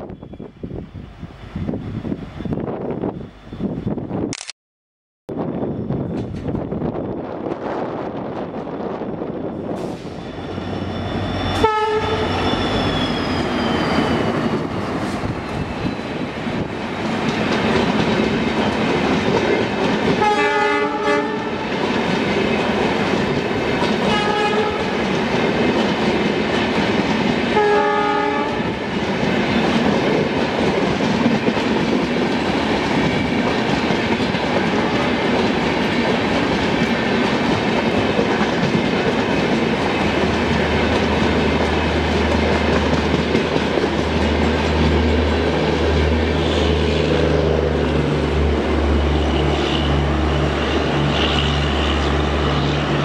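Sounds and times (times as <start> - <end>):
locomotive high whine: 5.3 - 25.8, 32.4 - 53.0
train wheels clacking on rails: 9.8 - 47.6
train horn: 11.1 - 12.9, 20.2 - 21.7, 24.0 - 25.0, 27.5 - 28.8, 48.9 - 53.0.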